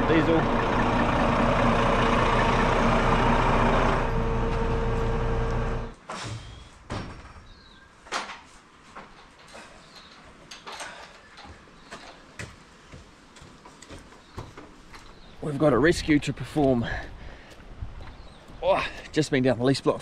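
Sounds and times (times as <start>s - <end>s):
truck engine running: 0.0s - 6.0s
wooden ladder knocks and clatters: 6.8s - 15.1s.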